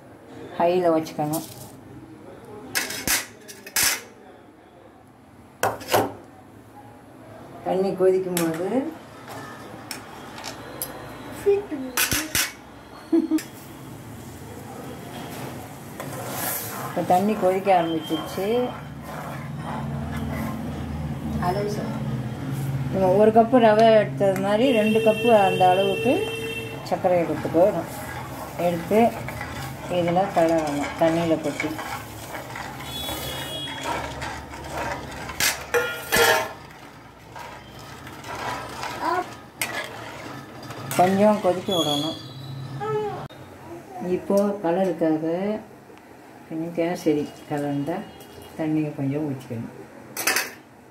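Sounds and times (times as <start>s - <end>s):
ladle clinking on metal vessels: 23.8s - 42.2s, 50.2s - 50.6s
water boiling: 24.4s - 42.4s.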